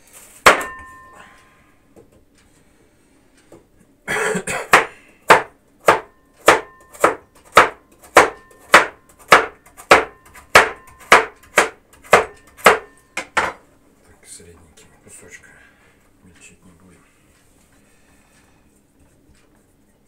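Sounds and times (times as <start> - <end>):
knife chopping on wooden board: 0.4 - 0.8, 4.7 - 13.6.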